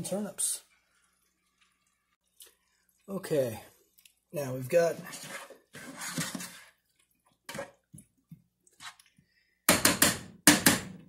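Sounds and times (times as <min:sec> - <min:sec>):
spoon stirring wet vegetables: 0:00.7 - 0:09.4.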